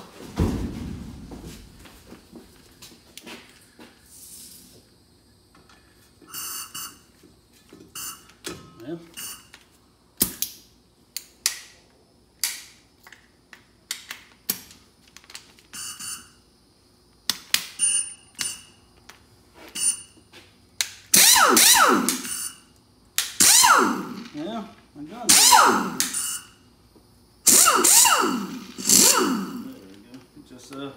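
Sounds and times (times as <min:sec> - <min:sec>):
loud burst of noise: 0:27.5 - 0:29.8.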